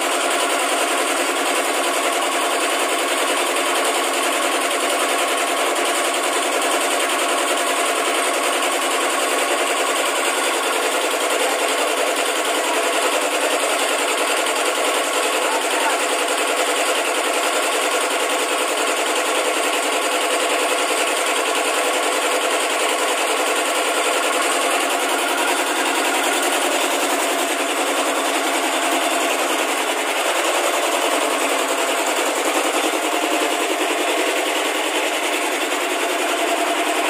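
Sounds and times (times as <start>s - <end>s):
machinery rattling: 9.7s - 37.0s.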